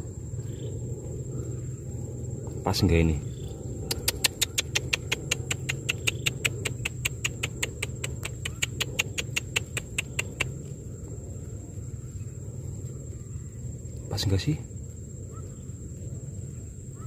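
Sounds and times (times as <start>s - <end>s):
quick even clicks: 3.9s - 10.5s.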